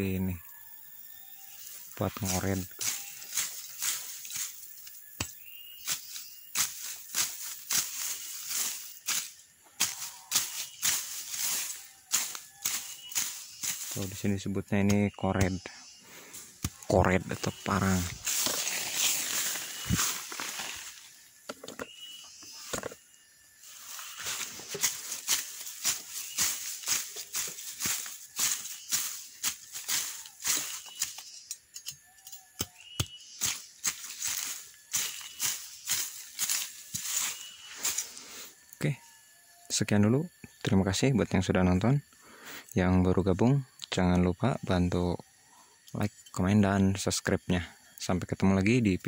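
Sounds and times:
blade chopping through grass and soil: 2.8 - 14.1, 18.2 - 20.9, 24.2 - 31.3, 32.6 - 37.4.

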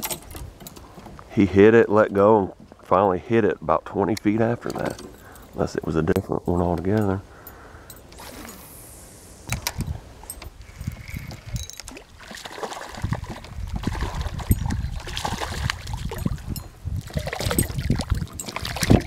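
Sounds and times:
low rumbling microphone noise: 1.2 - 11.8
fish splashing at water surface: 11.9 - 19.0.

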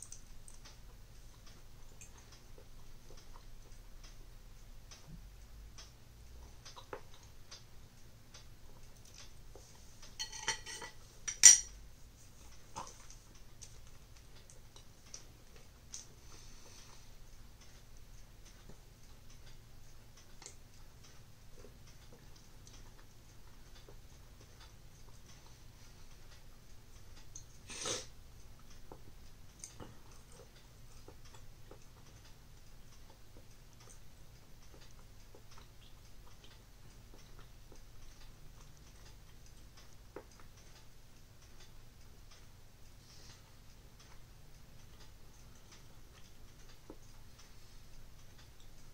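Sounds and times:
cutlery clinking on ceramic plate: 10.2 - 11.7.

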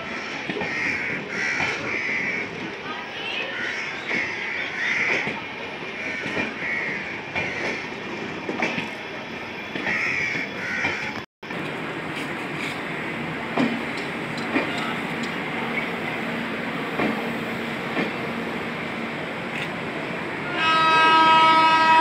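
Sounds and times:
crows cawing: 0.2 - 2.5, 6.0 - 7.8, 9.9 - 11.2
train wheels clattering over rail joints: 4.0 - 9.0, 13.5 - 16.0.

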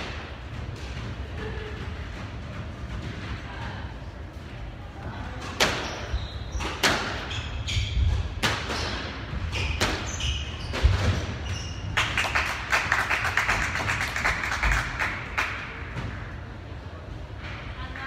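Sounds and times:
squash ball cracking off rackets: 5.5 - 7.3
shoe squeaks on wooden floor: 5.8 - 8.2, 9.4 - 11.9
spectators clapping: 11.9 - 15.9.

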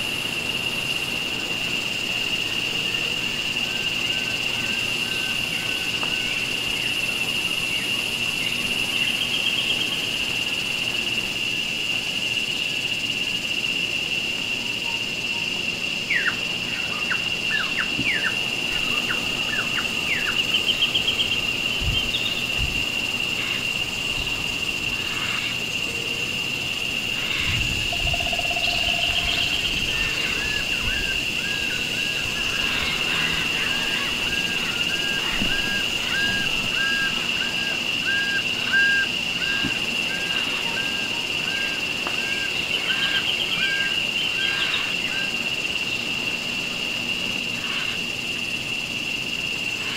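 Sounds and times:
high-pitched insect drone: 0.0 - 49.9
birds calling: 27.1 - 40.9, 41.5 - 45.1
bird trills: 27.3 - 30.2.

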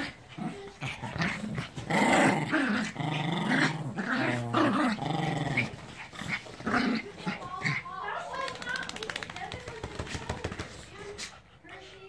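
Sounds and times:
small dogs growling: 0.0 - 8.5.

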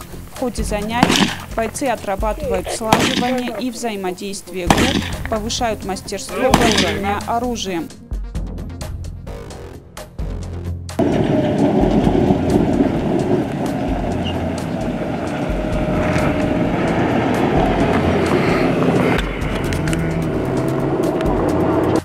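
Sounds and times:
hull and tyres rattling on gravel: 0.0 - 3.9, 11.0 - 22.0
armoured vehicle engine rumble: 0.0 - 7.8, 8.8 - 22.0.

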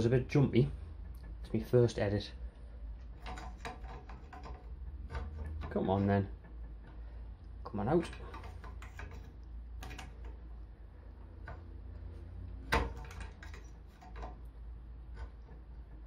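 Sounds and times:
locking grips metallic clicks: 3.1 - 10.5, 12.5 - 16.0.

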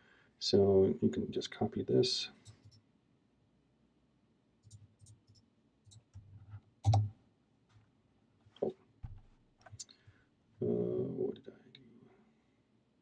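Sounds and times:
computer mouse and keyboard clicks: 4.6 - 7.1, 9.6 - 9.9.

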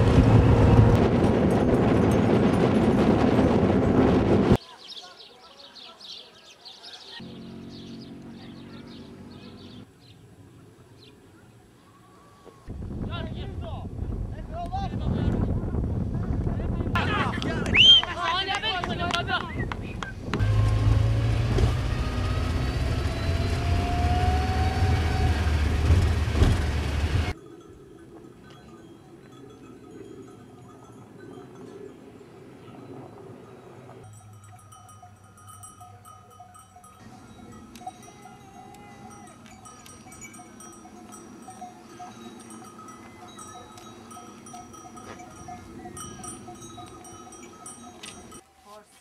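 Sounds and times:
car engine and road rumble: 0.0 - 4.6, 7.2 - 11.0, 19.8 - 27.4
livestock bells clinking: 1.1 - 3.2, 27.3 - 48.8
quiet outdoor background: 4.6 - 49.0
rising whine: 20.4 - 27.4.

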